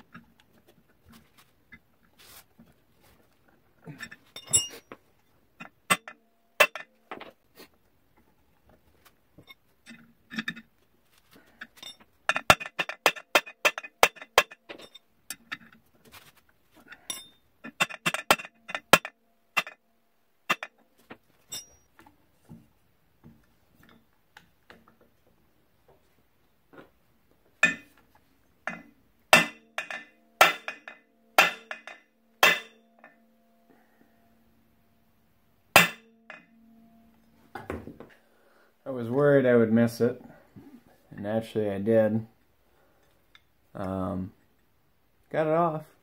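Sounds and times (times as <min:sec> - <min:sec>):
metal tools clinking: 0:03.9 - 0:05.0, 0:05.6 - 0:06.9, 0:11.6 - 0:15.8, 0:16.8 - 0:19.8, 0:21.4 - 0:21.9, 0:27.6 - 0:27.9, 0:28.7 - 0:33.2.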